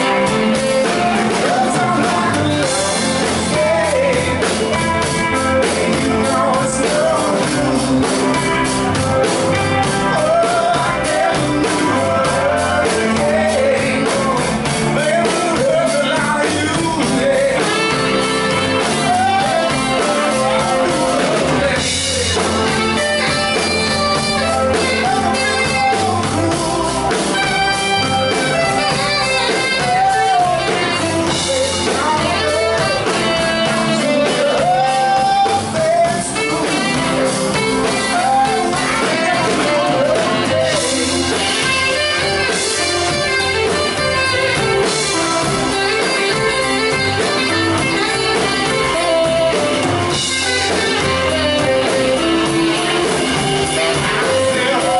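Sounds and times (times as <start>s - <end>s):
drum kit: 0.0s - 54.9s
electric guitar: 0.0s - 54.9s
tenor saxophone melody: 0.0s - 54.9s.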